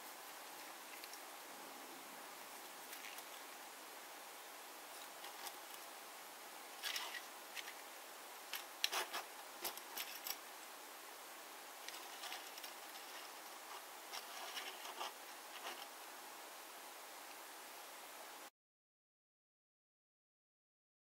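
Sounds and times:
steady hiss: 0:00.0 - 0:18.5
toy truck clicks and scrapes: 0:06.8 - 0:07.8, 0:08.5 - 0:10.4.

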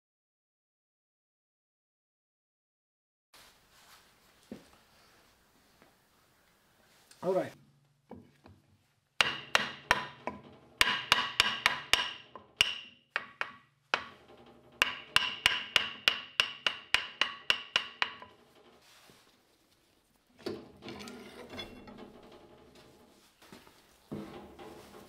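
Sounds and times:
hammer striking wooden block: 0:09.2 - 0:14.2, 0:14.8 - 0:18.4
metal rattling and scraping: 0:14.0 - 0:15.2, 0:18.1 - 0:19.3, 0:20.3 - 0:25.0.

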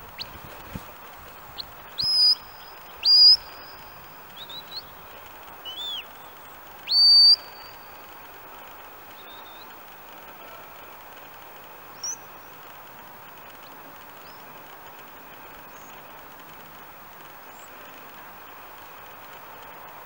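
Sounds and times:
soft whistled chirps: 0:01.6 - 0:05.0, 0:05.6 - 0:07.9, 0:09.2 - 0:09.8, 0:12.0 - 0:12.4
shepherd's whistle rising notes: 0:02.0 - 0:03.7, 0:06.9 - 0:07.6.

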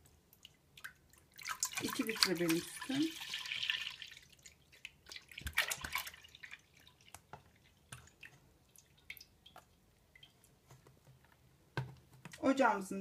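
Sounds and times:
milk dripping: 0:00.0 - 0:11.4
milk trickling into metal pot: 0:00.4 - 0:10.4.

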